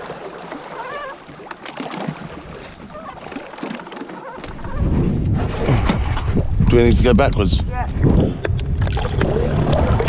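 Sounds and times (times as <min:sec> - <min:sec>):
wind and water hiss: 0:00.0 - 0:10.0
faint distant wavering calls: 0:00.6 - 0:01.3.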